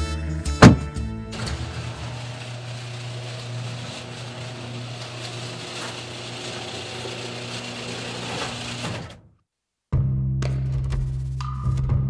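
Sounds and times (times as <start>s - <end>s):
garage door opener motor hum: 0.6s - 9.3s.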